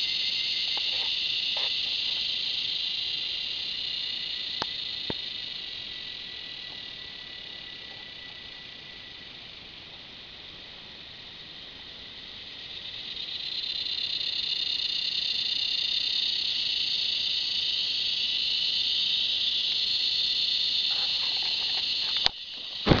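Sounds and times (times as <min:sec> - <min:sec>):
cicadas buzzing: 0:00.0 - 0:23.0.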